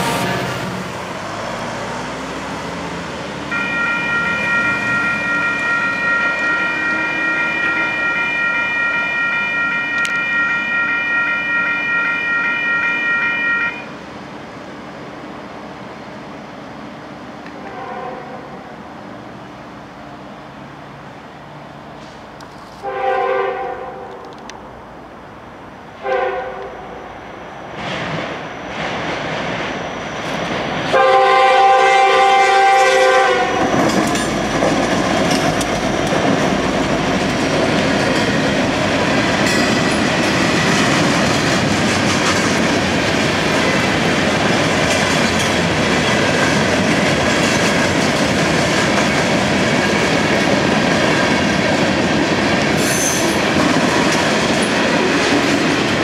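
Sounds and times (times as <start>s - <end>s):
train air horn blasts: 0.0s - 0.8s, 3.5s - 13.9s, 17.6s - 18.7s, 22.8s - 24.3s, 26.0s - 27.0s, 30.9s - 33.8s
train wheels on rails: 0.0s - 56.0s.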